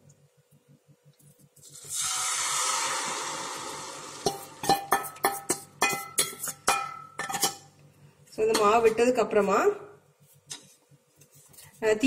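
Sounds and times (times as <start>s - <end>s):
batter hissing in hot pan: 1.6s - 4.8s.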